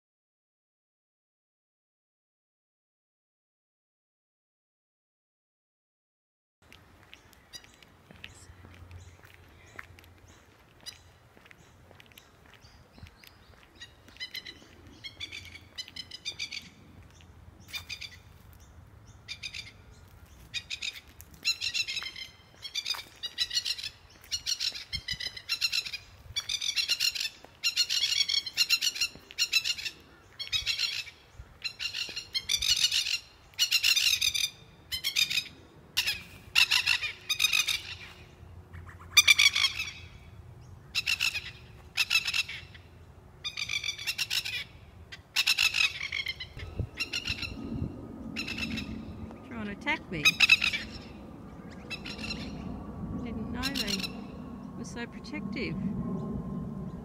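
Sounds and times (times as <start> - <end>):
lapwing alarm calls: 13.4 - 16.8, 17.6 - 18.4, 19.0 - 55.8.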